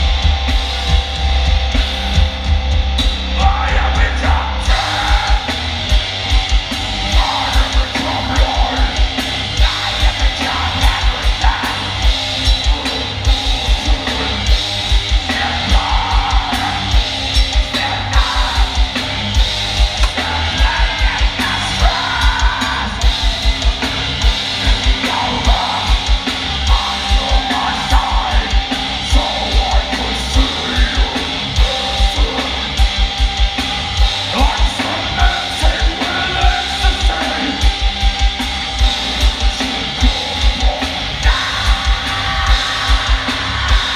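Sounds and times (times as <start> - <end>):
drum kit kick-drum beats: 0.0 - 43.9
electric guitars and bass: 0.0 - 43.9
person singing: 3.3 - 5.6, 34.3 - 37.8.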